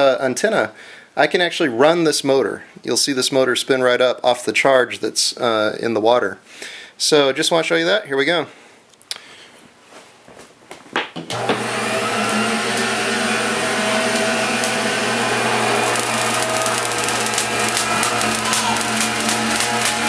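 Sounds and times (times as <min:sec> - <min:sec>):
motor and belt humming: 0:11.3 - 0:20.0
sharp clicks: 0:15.9 - 0:20.0.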